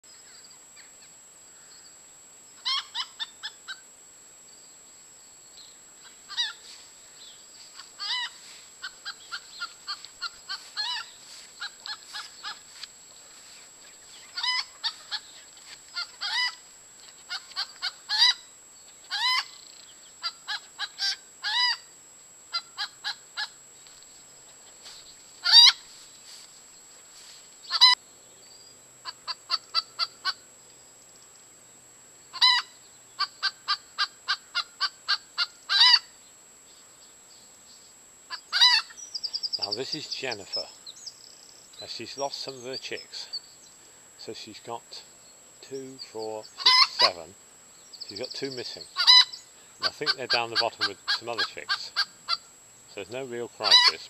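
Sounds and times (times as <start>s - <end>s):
hens clucking and squawking: 7.6s - 18.4s, 19.0s - 19.6s, 25.4s - 26.0s, 32.4s - 36.1s, 38.3s - 39.0s, 46.6s - 47.3s, 48.1s - 52.4s, 53.6s - 54.0s.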